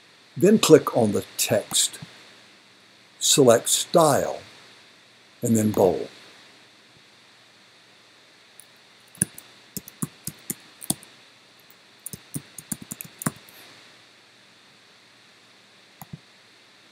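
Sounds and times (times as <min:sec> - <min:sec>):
keyboard typing: 0:09.1 - 0:11.0, 0:12.0 - 0:13.6.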